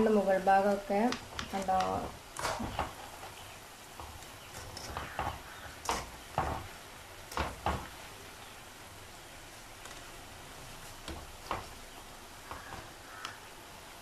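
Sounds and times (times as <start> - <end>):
fries sizzling in hot oil: 0.0 - 14.0
utensil scraping and knocking pan: 1.2 - 7.9.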